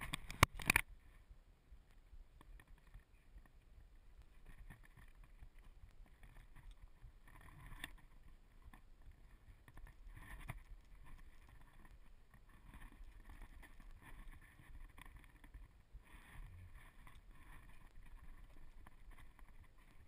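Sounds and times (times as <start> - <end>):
muffled camera handling noise: 0.0 - 0.9.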